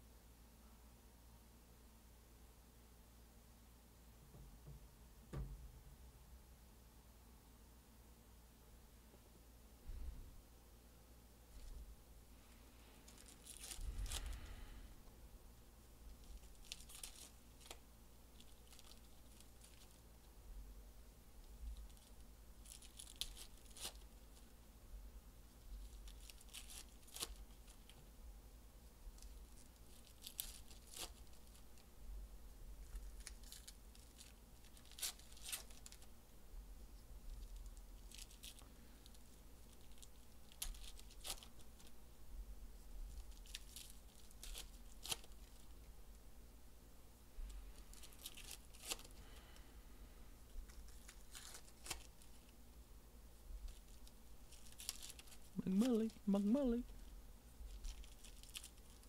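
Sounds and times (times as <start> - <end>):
foil wrappers crinkling: 12.9 - 14.6, 16.0 - 20.1, 21.6 - 24.5, 25.7 - 28.0, 29.1 - 31.9, 32.8 - 36.1, 37.3 - 42.0, 43.0 - 45.8, 47.7 - 49.6, 50.5 - 52.6, 53.6 - 57.0, 57.6 - 59.0.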